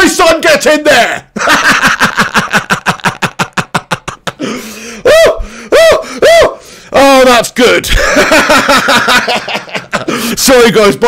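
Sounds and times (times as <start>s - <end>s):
man laughing: 1.4s - 6.5s, 7.9s - 10.6s
man whooping: 5.0s - 6.6s.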